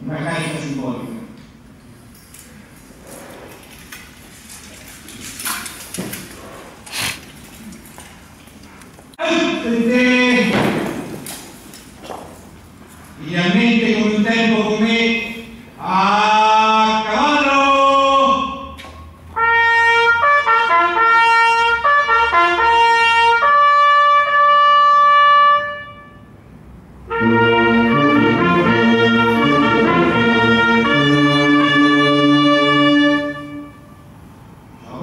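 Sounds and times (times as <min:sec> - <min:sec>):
brass band playing chords: 0:19.3 - 0:26.4, 0:27.0 - 0:34.1
military trumpet call: 0:19.4 - 0:26.3, 0:27.1 - 0:34.1.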